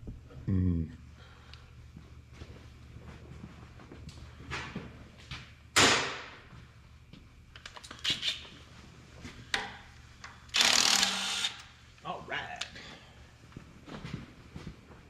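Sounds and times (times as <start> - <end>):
power tool burst: 10.5 - 11.6.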